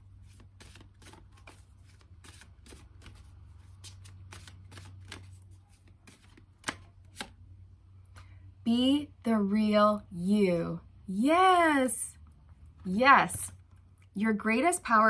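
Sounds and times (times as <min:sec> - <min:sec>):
cards shuffled by hand: 0:00.0 - 0:07.4
card snaps: 0:06.1 - 0:07.4.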